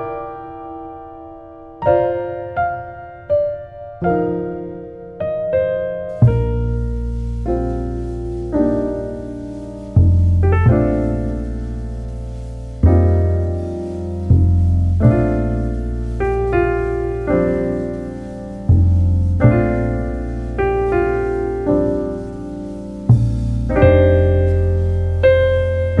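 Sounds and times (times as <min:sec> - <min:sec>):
slow piano chords: 0:00.0 - 0:26.0
deep bass notes: 0:06.1 - 0:26.0.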